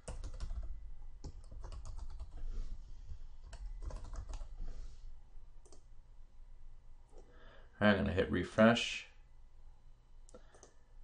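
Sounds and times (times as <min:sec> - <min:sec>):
typing on computer keyboard: 0:00.0 - 0:02.4, 0:03.4 - 0:04.5, 0:10.3 - 0:10.8.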